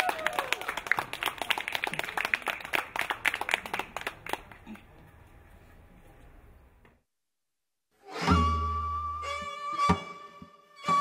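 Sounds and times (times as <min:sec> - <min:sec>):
audience clapping: 0:00.0 - 0:04.9.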